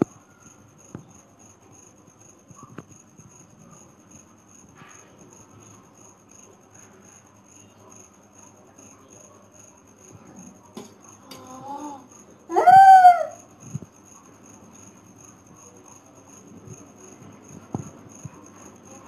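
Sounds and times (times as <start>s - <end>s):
faint whine: 0.0s - 12.5s.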